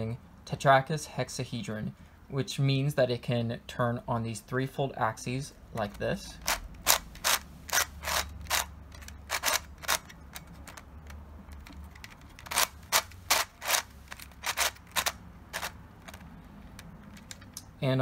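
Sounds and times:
plastic puzzle clicking: 5.8 - 17.6.

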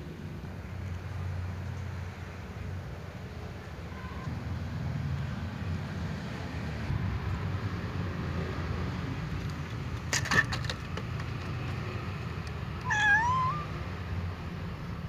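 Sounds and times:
cat meowing: 12.8 - 13.8.

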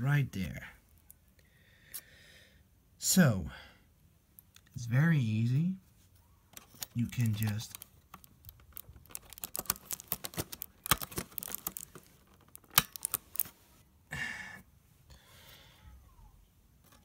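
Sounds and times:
fingers clicking and tapping: 7.1 - 13.4.

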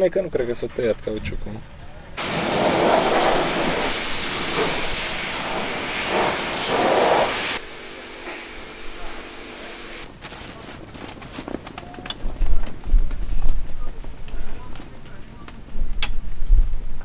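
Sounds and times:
pressure washer spraying: 2.2 - 10.1.

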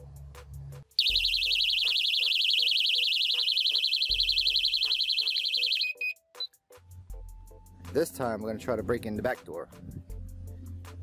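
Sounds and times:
car alarm siren warbling: 1.0 - 6.1
steady beep: 1.0 - 6.2
background music with beat: 9.0 - 11.0.

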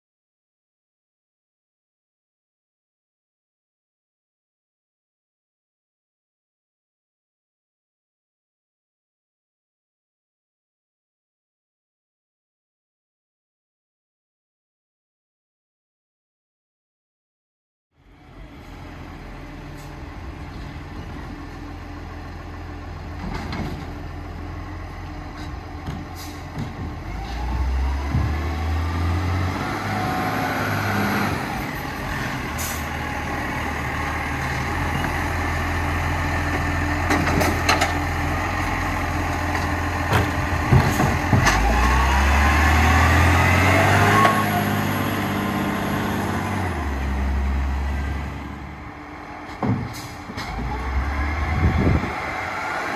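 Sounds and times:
garbage truck engine revving: 26.2 - 52.9.

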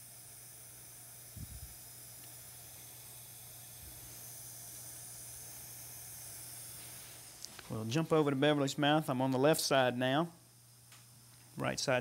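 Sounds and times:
torch flame hissing: 0.7 - 7.8.

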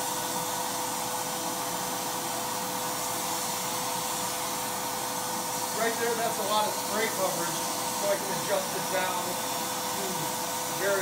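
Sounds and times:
paint sprayer whine and hiss: 0.0 - 11.0.

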